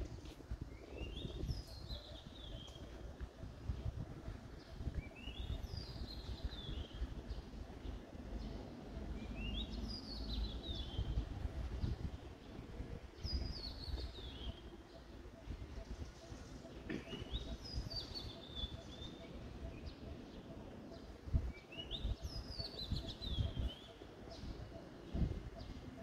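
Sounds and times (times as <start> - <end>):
steady low rumble: 0.0 - 16.6
songbird singing: 0.1 - 26.0.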